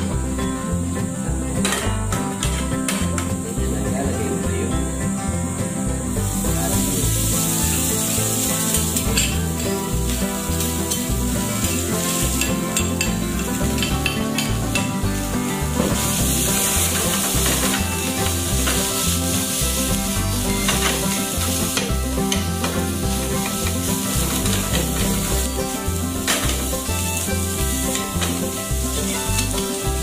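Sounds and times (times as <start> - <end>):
rice sizzling in a pan: 0.0 - 30.0
spatula scraping and tapping pan: 1.6 - 3.5, 6.2 - 30.0.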